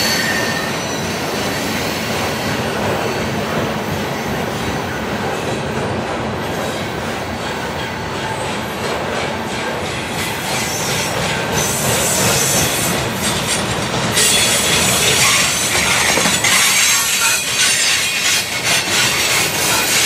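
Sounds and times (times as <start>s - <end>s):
high wheel squeal: 0.0s - 3.4s, 10.2s - 20.0s
freight train wheels rumbling on rails: 0.0s - 20.0s.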